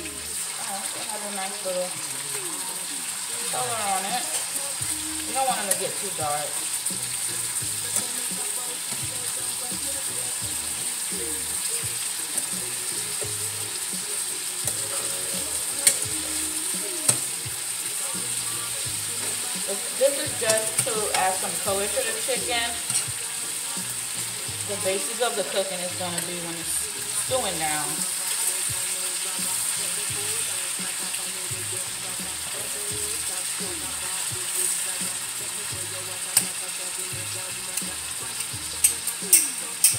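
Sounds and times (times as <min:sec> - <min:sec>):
chicken sizzling in oil: 0:00.0 - 0:39.9
metal tongs turning meat: 0:14.7 - 0:16.2, 0:19.2 - 0:23.2, 0:38.4 - 0:39.9
tongs clicking against pan: 0:15.8 - 0:16.1, 0:22.8 - 0:23.2, 0:37.7 - 0:39.9.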